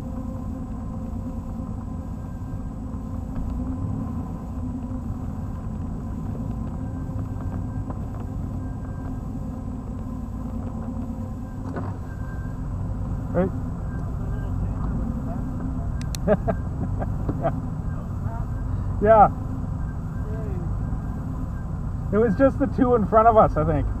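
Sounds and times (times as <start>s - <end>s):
car engine running: 0.0s - 24.0s.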